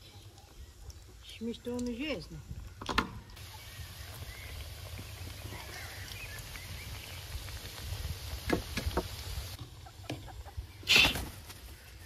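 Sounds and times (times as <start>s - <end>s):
oil popping and crackling: 0.2s - 10.2s
oil sizzling: 3.4s - 10.1s.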